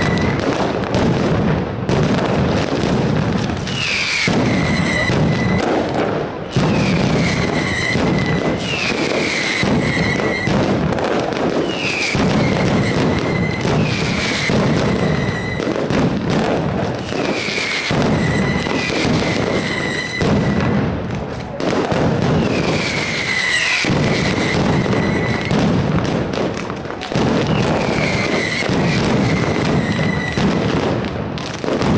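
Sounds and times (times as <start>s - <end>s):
firecrackers crackling: 0.0s - 31.9s
high sliding whistle: 3.8s - 5.7s, 6.9s - 10.5s, 17.3s - 20.6s, 22.4s - 25.5s, 29.2s - 30.4s.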